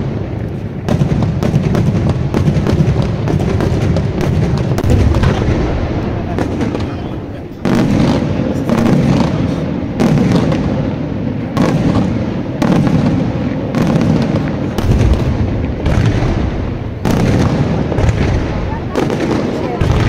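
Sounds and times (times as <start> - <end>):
fireworks bursting with loud bangs: 0.0 - 20.0.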